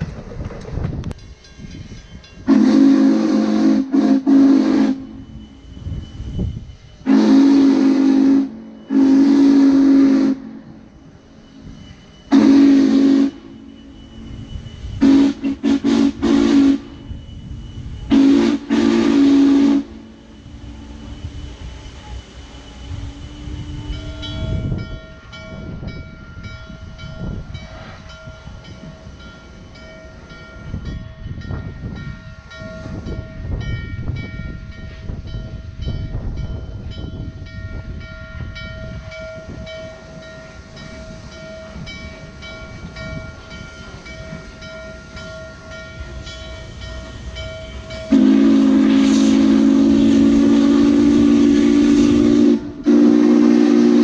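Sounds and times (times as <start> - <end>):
steam locomotive rumble: 0.0 - 54.0
steam whistle chord: 2.4 - 25.4, 38.6 - 54.0.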